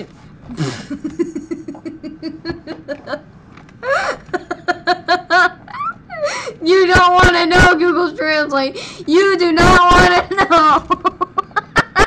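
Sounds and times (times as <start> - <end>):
boy giggling: 0.6 - 6.3, 10.2 - 12.0.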